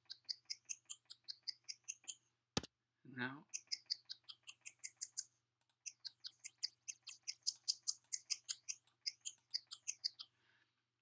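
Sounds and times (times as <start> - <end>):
mouse scroll wheel ticking: 0.0 - 2.2, 3.5 - 10.4.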